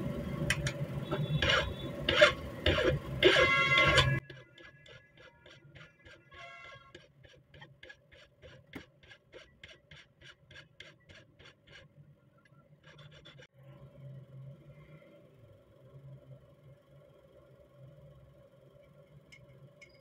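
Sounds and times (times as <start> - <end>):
hand file rasping on metal: 1.4 - 11.9, 12.8 - 13.5.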